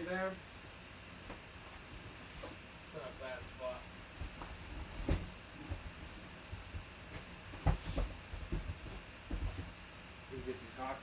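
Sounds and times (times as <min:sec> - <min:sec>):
low rumbling and shuffling: 0:01.2 - 0:11.0
objects knocking and thumping: 0:04.2 - 0:09.8.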